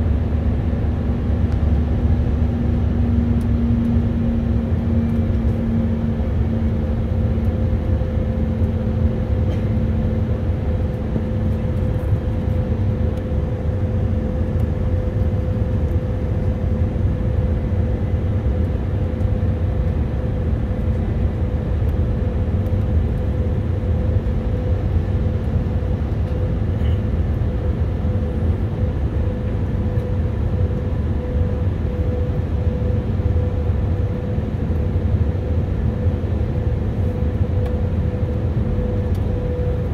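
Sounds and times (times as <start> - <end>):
airplane cabin engine rumble: 0.0 - 39.9.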